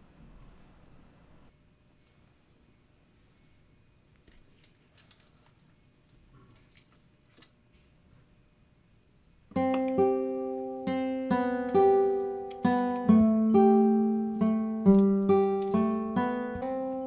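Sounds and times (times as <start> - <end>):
acoustic guitar picked notes: 9.5 - 17.0.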